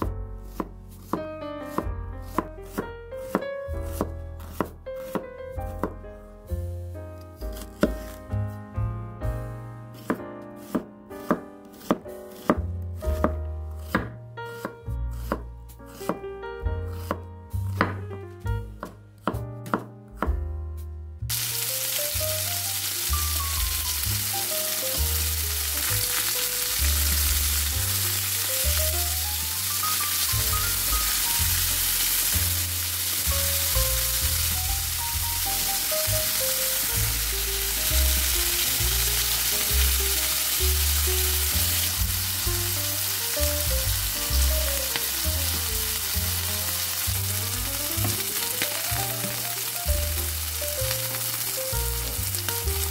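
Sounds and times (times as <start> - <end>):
knife chopping onion on board: 0.0 - 6.0, 7.5 - 8.2, 10.0 - 16.2, 16.9 - 18.0, 18.8 - 20.4
soft background music: 0.0 - 52.9
chicken sizzling in oil: 21.3 - 52.9.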